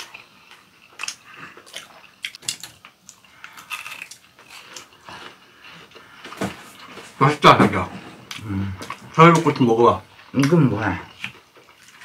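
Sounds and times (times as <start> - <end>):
chewing and biting: 0.0 - 6.9, 10.3 - 12.0.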